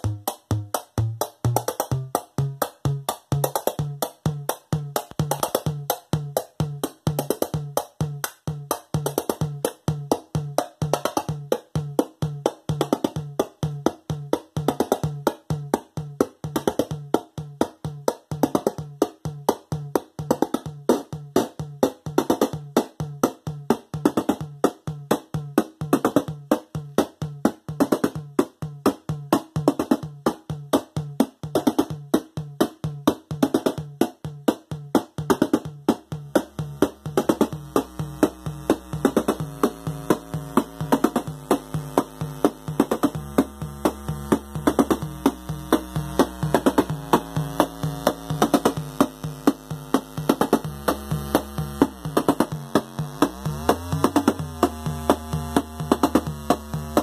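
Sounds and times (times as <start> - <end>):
low pitched synth pulse: 0.0 - 5.8, 35.8 - 57.0.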